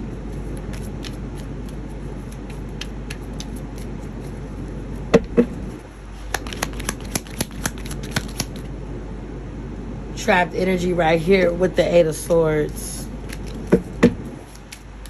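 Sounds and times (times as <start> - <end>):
low hum: 0.0 - 15.0
cards being shuffled: 0.1 - 8.7, 13.1 - 15.0.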